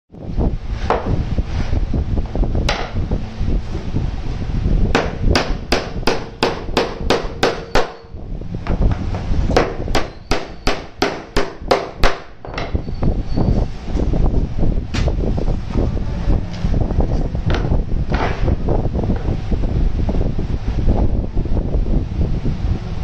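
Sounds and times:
hammer driving nails into wood: 5.0 - 8.1.

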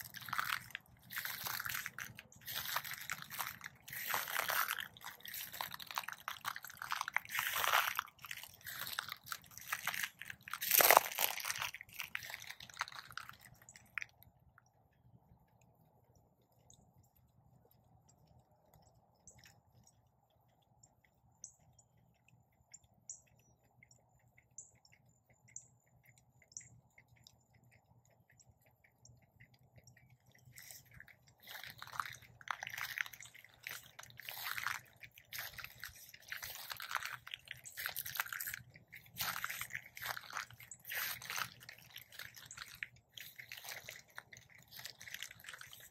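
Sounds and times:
footsteps crunching on pine straw: 1.2 - 6.6, 9.8 - 12.5.

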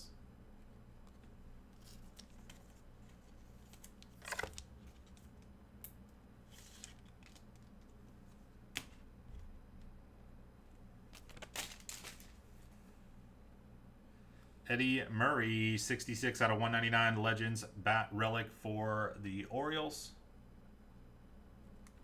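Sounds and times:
low steady hum: 0.0 - 22.0
cards swishing and sliding: 1.1 - 5.3, 6.4 - 7.5.

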